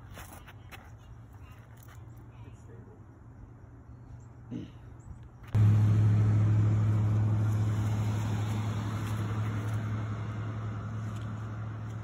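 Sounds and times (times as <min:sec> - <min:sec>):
motor droning: 0:05.6 - 0:12.0.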